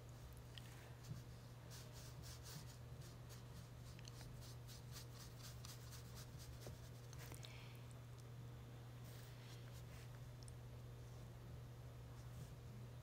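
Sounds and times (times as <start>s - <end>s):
steady low hum: 0.0s - 13.0s
brush strokes on paper: 1.0s - 7.2s.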